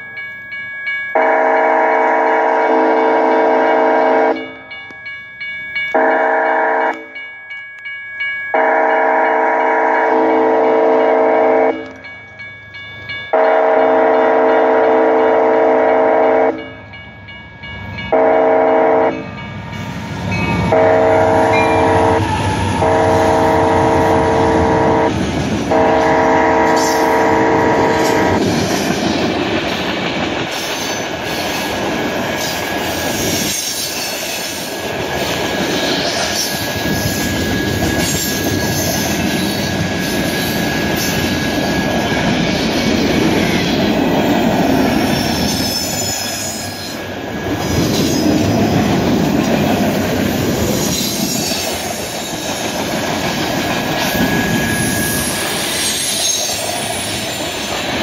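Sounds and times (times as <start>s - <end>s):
freight train rumbling past: 0.0s - 58.0s
high wheel squeal: 35.8s - 43.9s, 45.0s - 47.0s, 50.7s - 52.7s, 53.9s - 57.7s.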